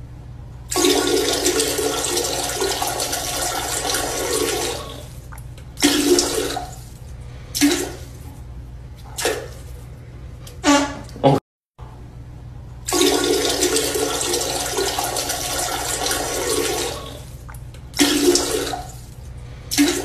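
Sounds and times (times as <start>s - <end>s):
steady low hum: 0.0s - 20.0s
water gushing like toilet flush: 0.7s - 8.4s, 12.8s - 20.0s.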